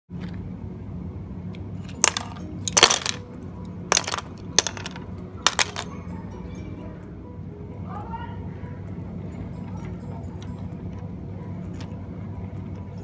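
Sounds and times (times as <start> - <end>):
steady low hum: 0.1 - 13.0
wooden toys clattering on bricks: 1.8 - 3.3, 3.9 - 6.0.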